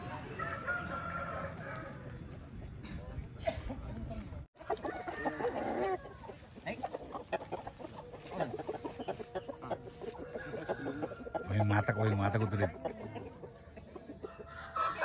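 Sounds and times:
rooster crowing: 0:00.4 - 0:02.0, 0:04.7 - 0:06.2, 0:10.1 - 0:12.6
chicken clucks: 0:04.6 - 0:15.0.

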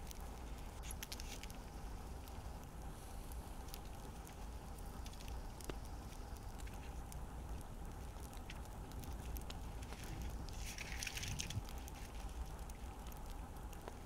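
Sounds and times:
faint fire crackling: 0:00.0 - 0:14.0
shallow stream running: 0:09.3 - 0:12.6.

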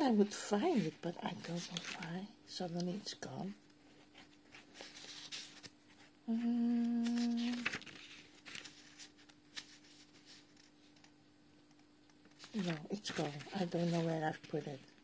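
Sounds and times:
faint steady hum: 0:00.0 - 0:15.0
papers rustling: 0:00.7 - 0:02.2, 0:04.0 - 0:06.1, 0:07.0 - 0:11.2, 0:12.2 - 0:15.0
woman humming: 0:06.2 - 0:07.8.

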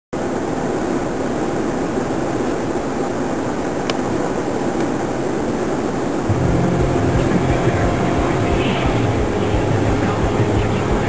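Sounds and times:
car road and engine noise: 0:03.6 - 0:11.0.

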